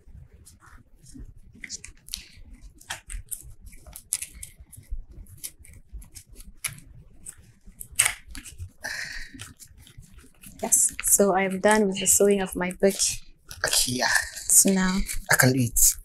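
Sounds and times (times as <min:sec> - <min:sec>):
paper rustling: 0:00.4 - 0:15.6
scissors snipping paper: 0:01.6 - 0:11.8.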